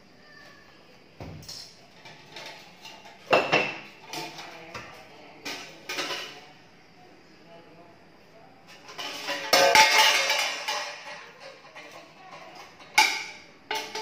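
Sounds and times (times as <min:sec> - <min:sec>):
metal kitchenware clattering: 0:01.4 - 0:06.5, 0:08.7 - 0:14.0.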